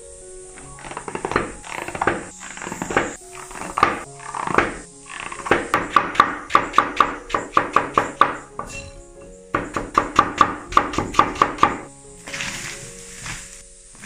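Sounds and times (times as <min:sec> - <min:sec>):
soft background music: 0:00.0 - 0:14.0
cleaver chopping on wooden board: 0:01.3 - 0:04.8, 0:05.4 - 0:08.4, 0:09.6 - 0:11.9.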